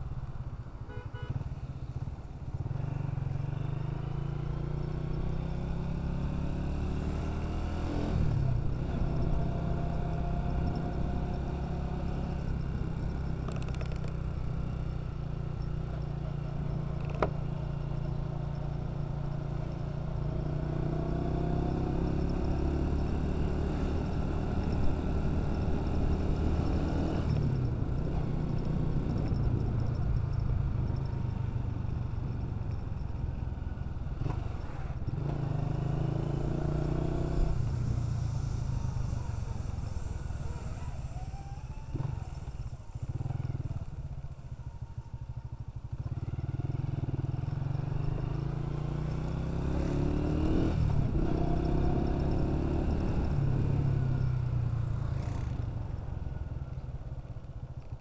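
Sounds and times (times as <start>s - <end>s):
motorcycle engine running: 0.0s - 58.0s
road noise: 0.0s - 58.0s.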